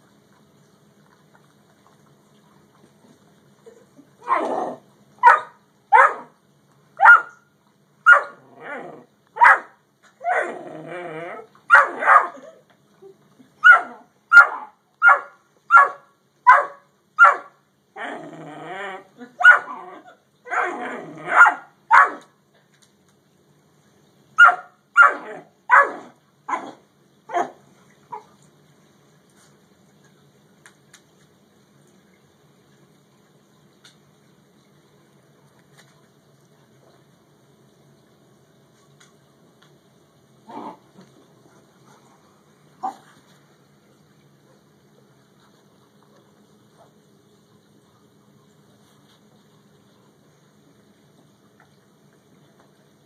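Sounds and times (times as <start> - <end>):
dogs barking: 5.2 - 6.3, 7.0 - 7.4, 8.1 - 8.4, 9.4 - 10.5, 11.7 - 12.5, 13.6 - 17.6, 19.4 - 19.8, 20.5 - 22.3, 24.4 - 27.6
dogs growling: 8.4 - 9.1, 10.3 - 11.5, 18.0 - 21.4, 40.5 - 41.1.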